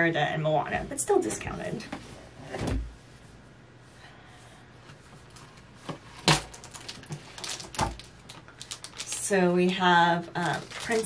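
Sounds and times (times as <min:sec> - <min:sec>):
plastic sleeve crinkling: 0:06.2 - 0:11.0.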